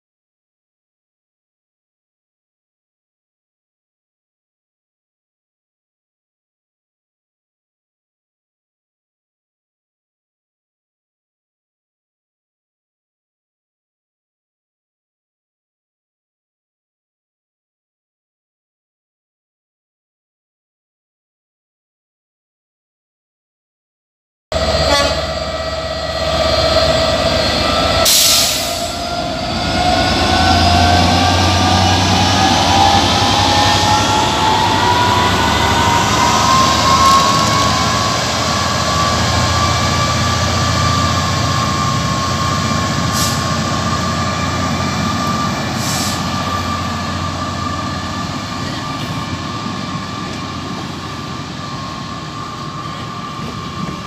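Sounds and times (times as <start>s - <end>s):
diesel locomotive drone: 24.5s - 54.0s
rising locomotive whine: 24.5s - 54.0s
train coaches rolling past: 24.5s - 54.0s.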